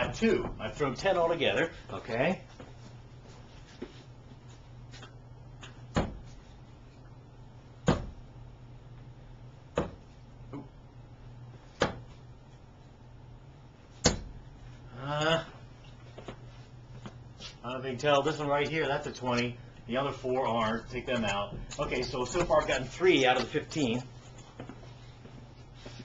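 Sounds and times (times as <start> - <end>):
darts thudding into dartboard: 5.9 - 6.3, 7.8 - 8.2, 9.7 - 10.1, 11.8 - 12.1, 14.0 - 14.4.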